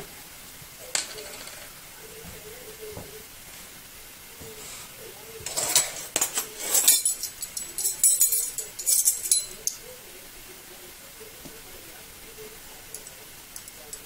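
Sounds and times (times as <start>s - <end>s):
metal spoons jingling: 6.6s - 9.8s.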